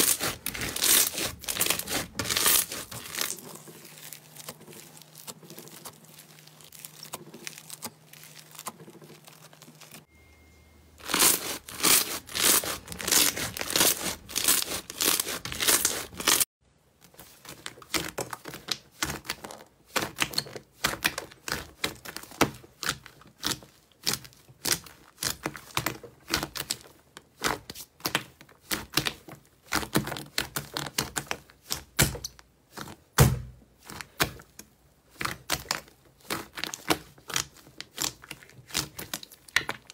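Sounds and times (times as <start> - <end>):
slime crackling: 0.0 - 10.1, 11.0 - 16.4, 33.8 - 39.9.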